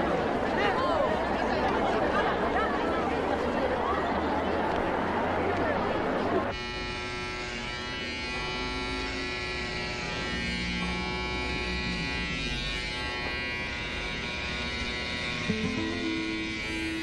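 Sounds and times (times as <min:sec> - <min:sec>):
electric hair clippers buzzing: 0:06.5 - 0:17.0.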